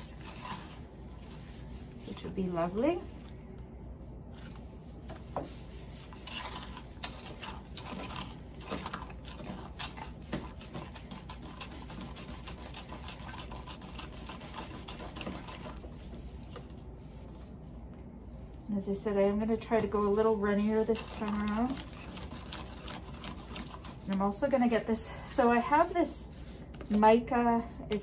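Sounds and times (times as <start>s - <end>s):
spoon scraping plastic cup: 0.0s - 1.4s, 6.0s - 15.8s, 19.8s - 24.4s
metal spoon stirring concrete: 0.0s - 1.5s, 5.8s - 16.1s, 19.7s - 25.0s.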